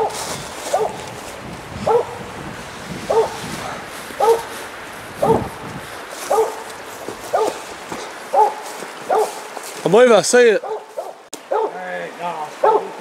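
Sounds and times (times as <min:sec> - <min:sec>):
dog barking: 0:00.7 - 0:01.0, 0:01.8 - 0:02.2, 0:03.1 - 0:04.5, 0:05.2 - 0:05.5, 0:06.3 - 0:06.7, 0:07.3 - 0:07.6, 0:08.3 - 0:09.5, 0:10.6 - 0:11.8, 0:12.6 - 0:13.0.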